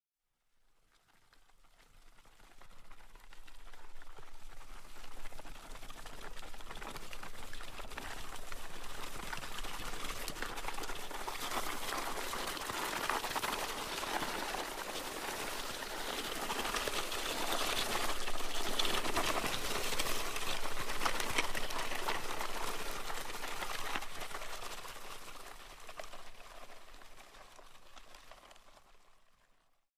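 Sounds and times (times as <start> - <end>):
gravel being dragged: 3.4 - 28.8.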